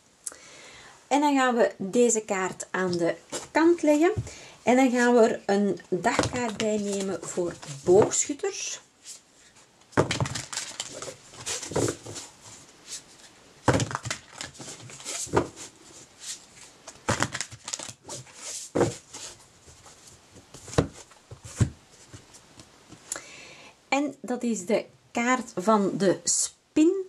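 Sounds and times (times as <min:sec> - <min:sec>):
cards being shuffled: 0:06.2 - 0:08.1, 0:10.0 - 0:12.3, 0:12.9 - 0:22.2.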